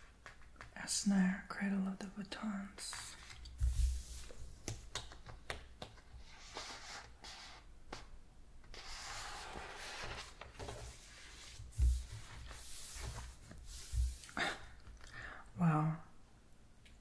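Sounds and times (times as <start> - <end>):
book pages rustling: 2.8 - 8.1, 8.7 - 14.2.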